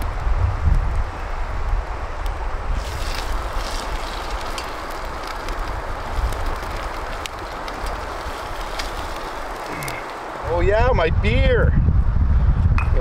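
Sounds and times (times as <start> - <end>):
campfire crackling and popping: 0.0 - 11.6
wind rumbling on microphone: 0.0 - 13.0
river water rushing: 2.8 - 10.5.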